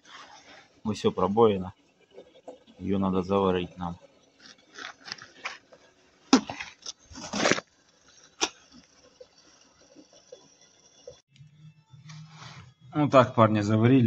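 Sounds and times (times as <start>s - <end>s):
faint steady hiss: 0.0s - 1.8s, 2.4s - 4.1s
handling clicks and rustles: 4.3s - 10.4s.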